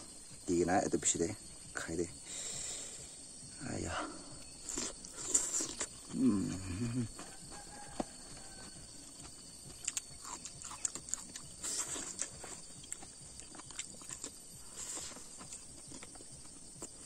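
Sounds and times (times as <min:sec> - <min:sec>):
chewing with wet lip smacks: 0:04.4 - 0:06.2, 0:09.2 - 0:17.0.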